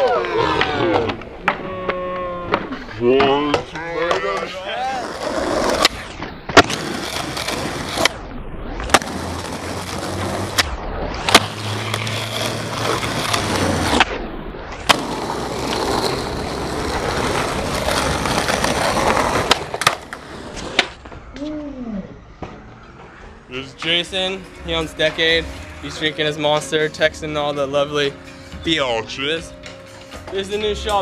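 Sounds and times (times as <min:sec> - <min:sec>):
skateboard wheels rolling on asphalt: 0:00.0 - 0:21.4
skateboard deck landing: 0:14.8 - 0:21.1.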